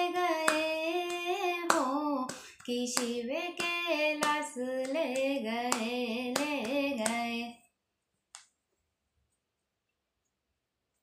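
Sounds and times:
hand claps: 0.0 - 7.4
woman singing devotional song: 0.0 - 7.7.

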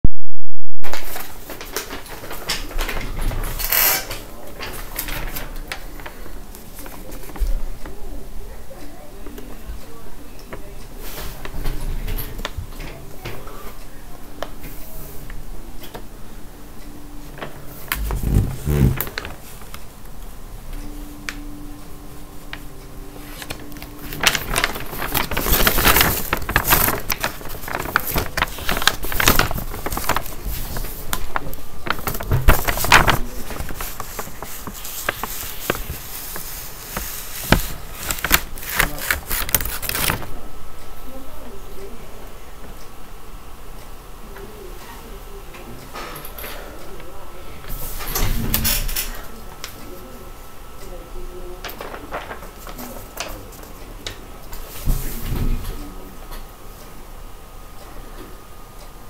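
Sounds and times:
paper rustling and crinkling: 0.9 - 7.6, 17.9 - 19.8, 23.2 - 40.3, 51.7 - 53.7.

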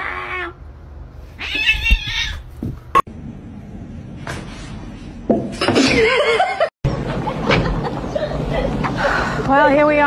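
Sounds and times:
cat yowling: 0.0 - 0.6, 1.4 - 2.5.

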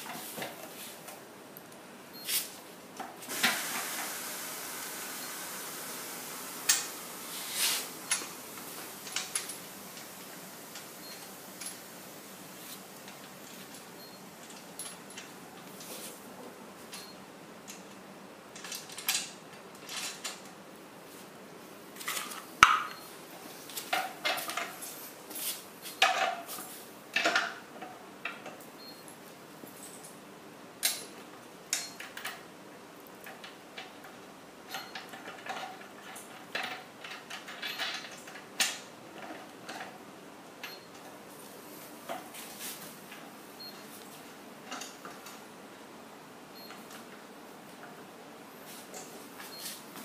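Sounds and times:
clicks and knocks of metal parts: 17.7 - 20.6, 25.8 - 28.6, 30.8 - 32.5, 33.2 - 40.0.

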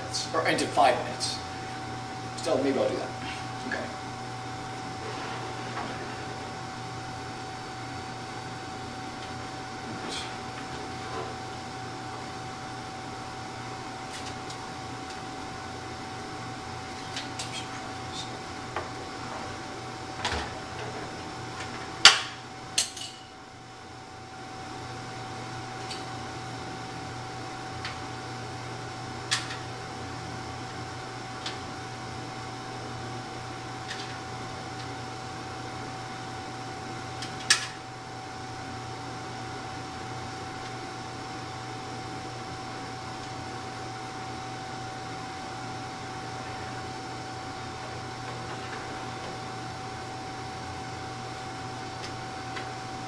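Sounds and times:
steady background hum: 0.0 - 53.0.

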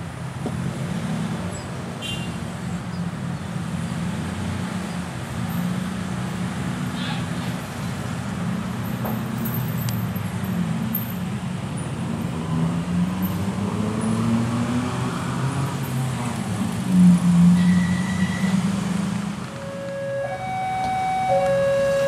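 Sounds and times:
diesel locomotive engine running: 19.3 - 22.0
short high tone: 19.5 - 22.0.

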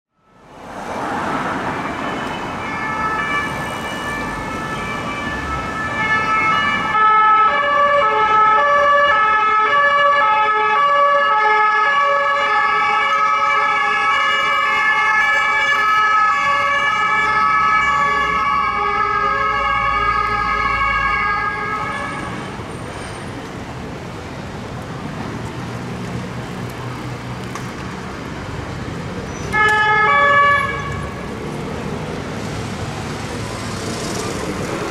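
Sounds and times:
road traffic noise: 0.1 - 34.9
two-tone police sirens: 0.2 - 22.8, 29.5 - 31.3.

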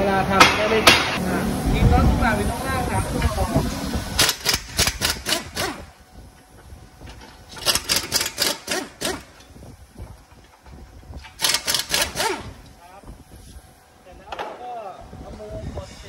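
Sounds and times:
pneumatic impact wrench bursts: 4.1 - 6.0, 7.2 - 9.6, 11.2 - 12.7.

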